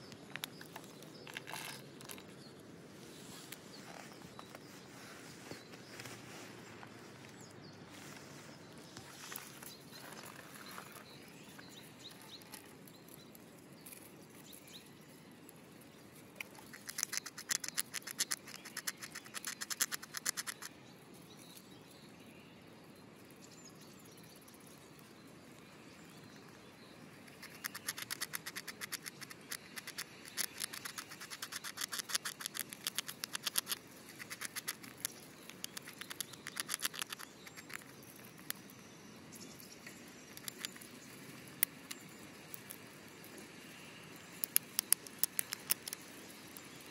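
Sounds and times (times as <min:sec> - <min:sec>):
squirrel gnawing nutshell: 0:09.9 - 0:20.8, 0:26.4 - 0:46.9.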